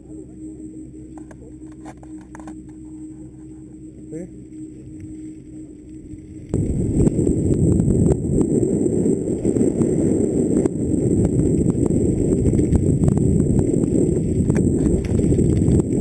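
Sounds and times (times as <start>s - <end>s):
tyres and air rumbling: 0.0s - 16.0s
bike rattling over stones: 10.7s - 16.0s.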